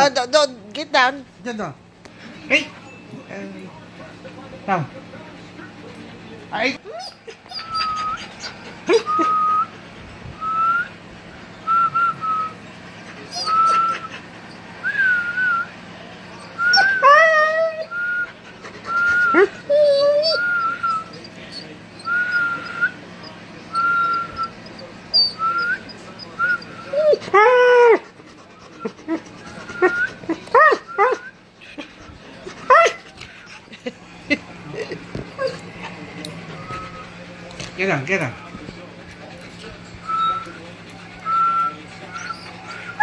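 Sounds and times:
dog whining: 6.6 - 9.8, 11.7 - 15.7, 16.3 - 31.4, 32.4 - 33.6, 35.3 - 37.2, 39.9 - 43.0.

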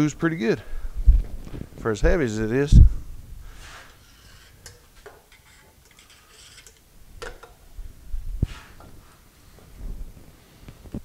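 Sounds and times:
faint rustling: 0.8 - 2.0
can set down on metal: 4.6 - 7.6.

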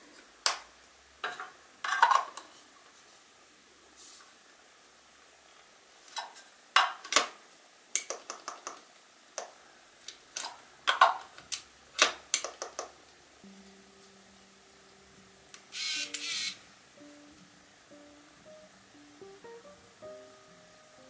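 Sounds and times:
soft guitar music: 13.4 - 21.0.

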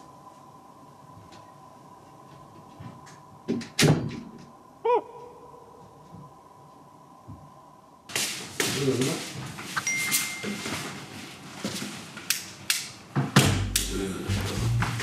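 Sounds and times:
thin high tone: 9.8 - 10.9.

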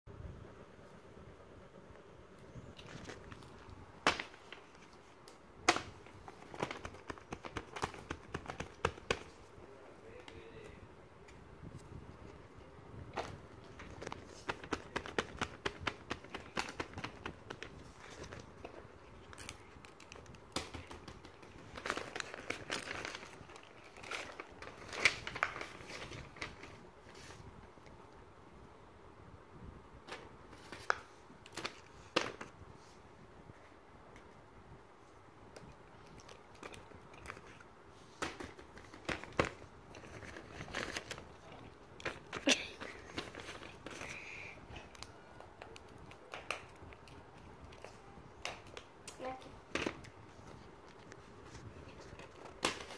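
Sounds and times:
toys clicking and crinkling: 13.6 - 26.8, 35.5 - 50.2.

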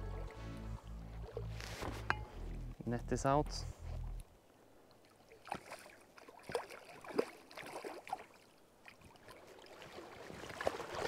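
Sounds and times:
water splashes: 4.9 - 11.0.

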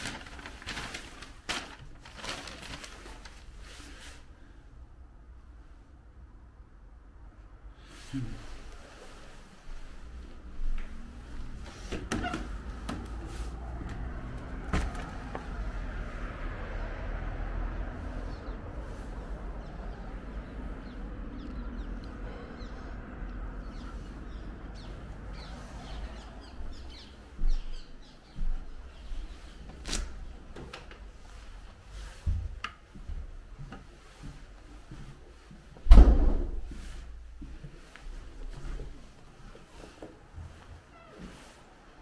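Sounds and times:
loud thump: 35.9 - 36.6.

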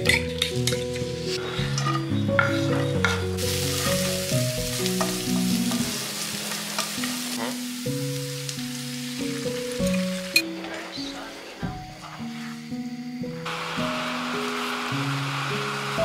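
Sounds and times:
background music: 0.0 - 16.0
onion frying in a pan: 2.6 - 10.5, 13.1 - 16.0.

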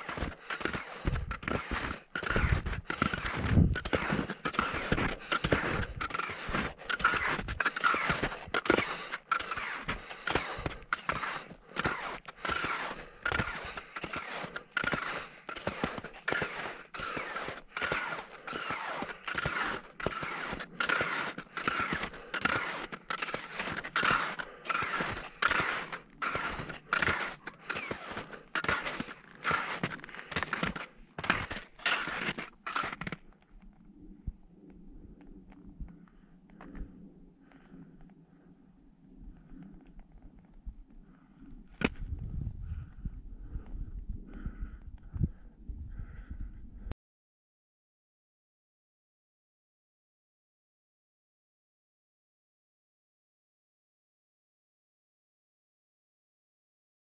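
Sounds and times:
ski climbing steps scraping: 0.0 - 33.2.

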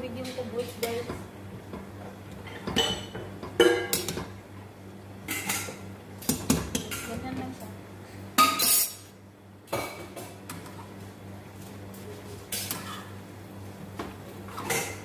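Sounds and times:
utensils clattering on pots: 2.4 - 4.3, 5.3 - 7.3, 8.4 - 9.0, 14.5 - 15.0.

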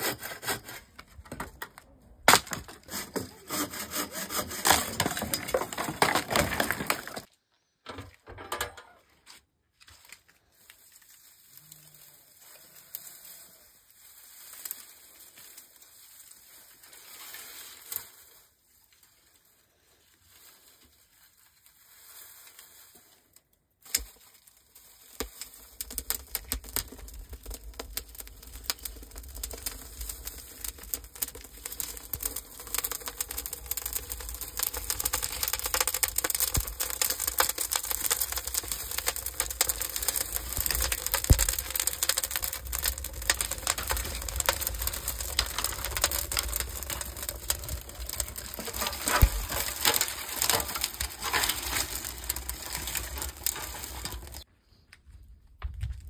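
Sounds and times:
straw and twigs crackling in fire: 0.0 - 7.4, 9.7 - 56.0
dry straw rustling: 9.8 - 54.5.

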